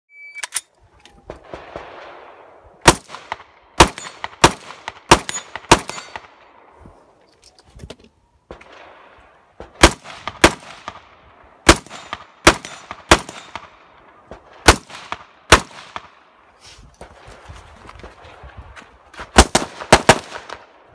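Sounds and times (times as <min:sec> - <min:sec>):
rifle shots: 0:01.3 - 0:06.6, 0:09.6 - 0:16.2, 0:19.3 - 0:20.8.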